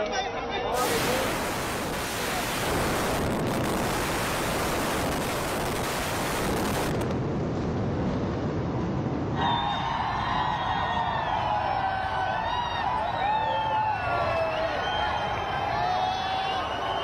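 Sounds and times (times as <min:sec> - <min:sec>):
building collapse rushing noise: 0:00.8 - 0:12.3.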